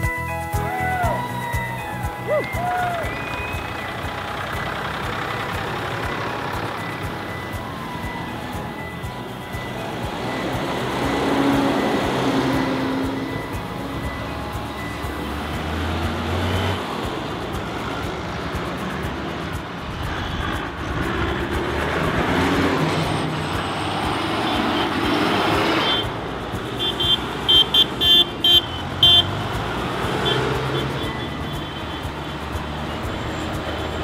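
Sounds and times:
tractor diesel engines passing: 0:00.0 - 0:34.0.

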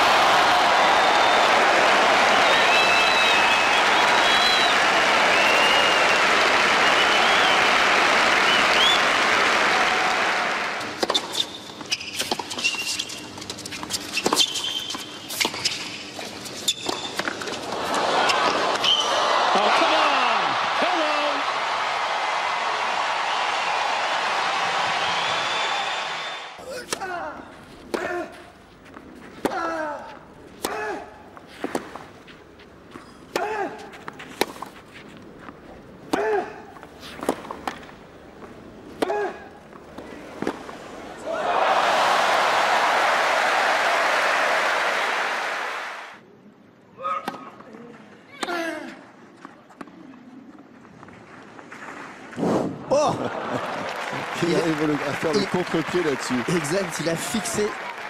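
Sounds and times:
crowd applauding: 0:00.0 - 0:11.0, 0:17.7 - 0:26.6, 0:41.3 - 0:46.2, 0:53.1 - 0:58.0
whistles from crowd: 0:02.2 - 0:07.8, 0:08.4 - 0:09.2, 0:18.8 - 0:19.2, 0:25.0 - 0:26.6
tennis shoes squeaking on court: 0:11.0 - 0:17.6
racket hitting tennis ball: 0:33.3 - 0:34.8, 0:36.1 - 0:36.4, 0:38.9 - 0:39.4.

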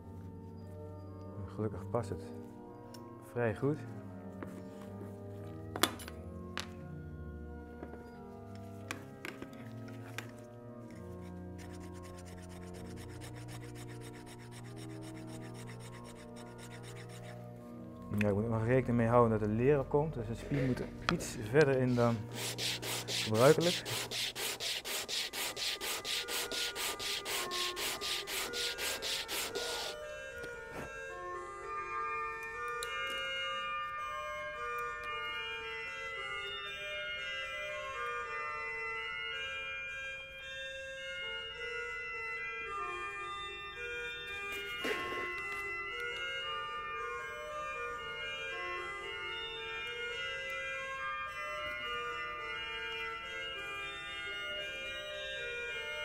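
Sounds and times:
soft sustained organ notes: 0:00.0 - 0:05.6, 0:06.2 - 0:56.0
sanding wood on abrasive paper: 0:11.2 - 0:17.4, 0:21.8 - 0:30.0.

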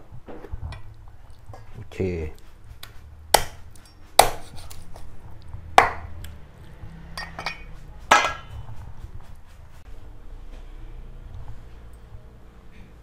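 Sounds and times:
cleaver chopping on wooden block: 0:03.3 - 0:03.6, 0:04.2 - 0:04.5, 0:05.8 - 0:06.1.

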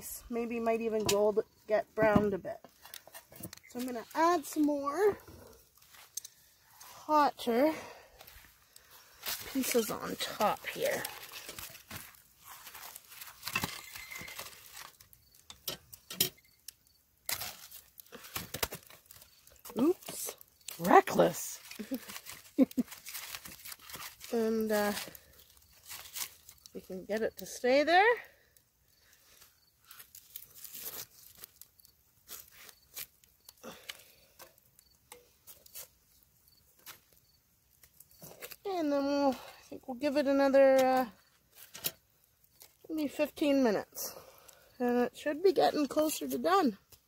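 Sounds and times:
wood and embers on iron: 0:00.0 - 0:47.0.

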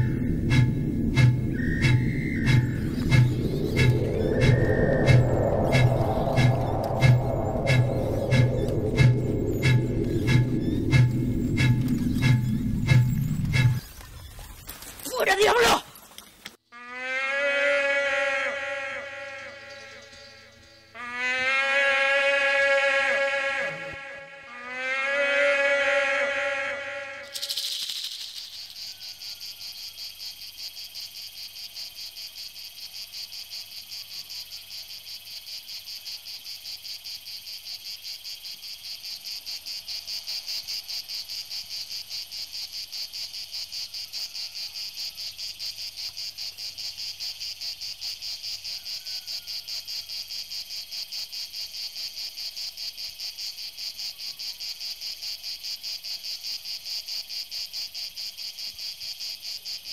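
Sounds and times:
musical note: 0:00.0 - 0:13.8
shrill insect chorus: 0:00.0 - 0:14.2, 0:25.6 - 0:59.9.

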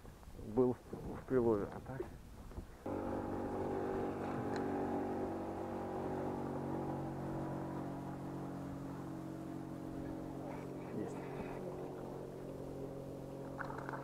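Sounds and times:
outboard motor running: 0:02.9 - 0:14.0.

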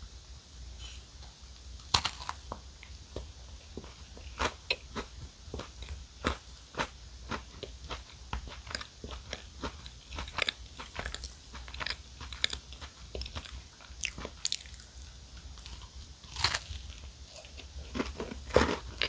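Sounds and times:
chewing and crunching: 0:03.8 - 0:19.0.

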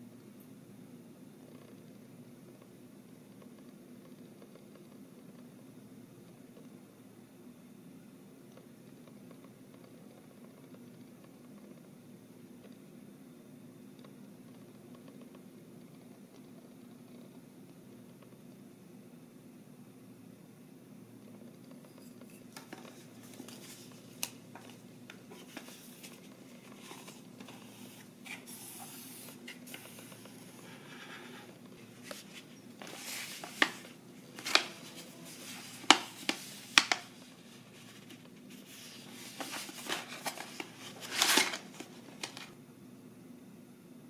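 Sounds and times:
paper envelope rustling: 0:22.5 - 0:42.6
pencils tapping and clicking: 0:32.0 - 0:42.5.

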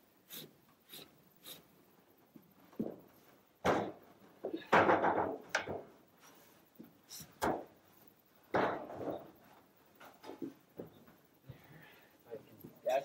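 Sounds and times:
thump: 0:03.6 - 0:04.0, 0:04.7 - 0:05.9, 0:08.5 - 0:09.2.

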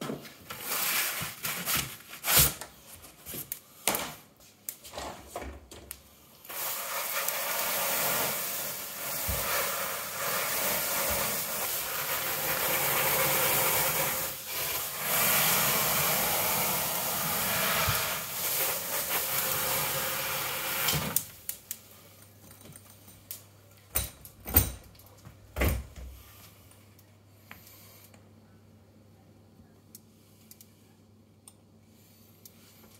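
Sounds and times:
water spray hissing: 0:06.5 - 0:21.2.

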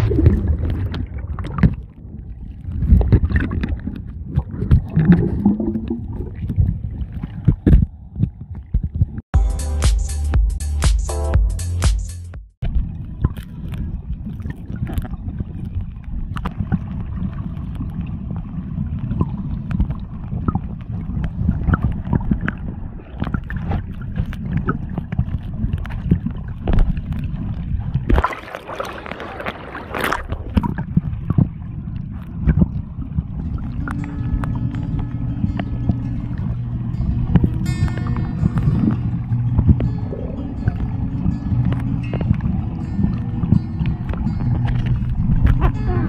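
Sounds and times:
bubbling and clicking crackles: 0:00.0 - 0:09.2, 0:12.6 - 0:46.0
muffled underwater rumble: 0:00.0 - 0:09.2, 0:12.6 - 0:46.0
water splashing: 0:00.0 - 0:09.2, 0:12.6 - 0:46.0
background music: 0:09.4 - 0:12.4.

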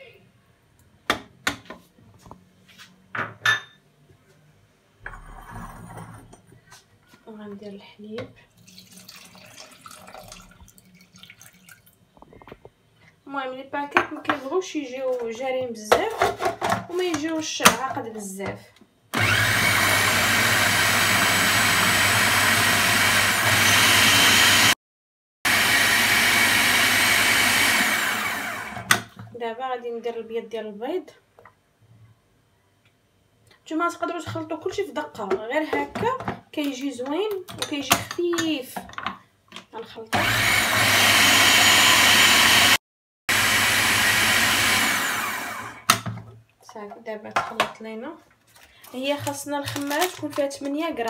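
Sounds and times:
clatter and rustling on countertop: 0:05.0 - 0:07.3, 0:13.9 - 0:18.8, 0:33.9 - 0:39.8, 0:45.9 - 0:51.0
food processor motor running: 0:19.2 - 0:24.8, 0:25.5 - 0:29.0, 0:40.2 - 0:45.9.

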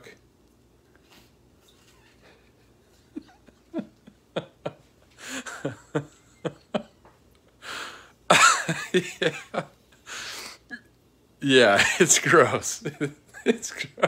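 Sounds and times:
man chuckling: 0:02.2 - 0:07.1, 0:08.3 - 0:09.7, 0:11.5 - 0:14.0.

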